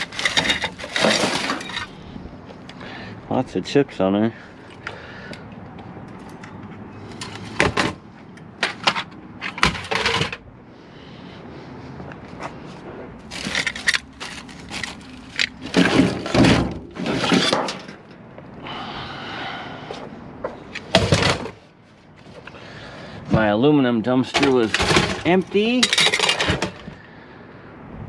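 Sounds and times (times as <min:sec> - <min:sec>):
metal equipment knocking and clanking: 0:13.3 - 0:18.2, 0:24.3 - 0:27.0.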